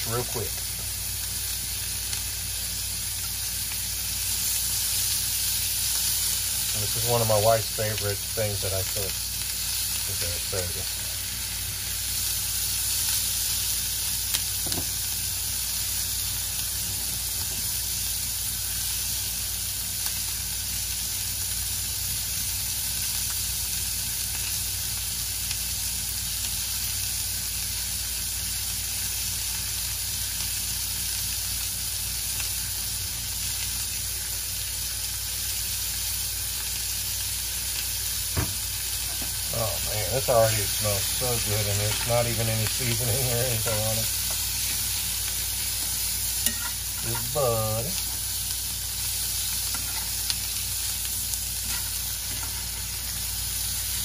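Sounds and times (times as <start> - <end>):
vegetables sizzling in a skillet: 0.0 - 54.0
metal tongs clicking on pan: 46.4 - 47.3.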